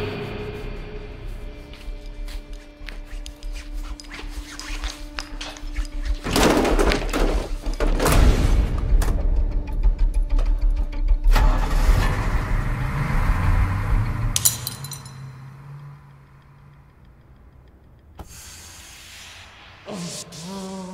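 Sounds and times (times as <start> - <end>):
bus engine rumbling: 11.4 - 18.5.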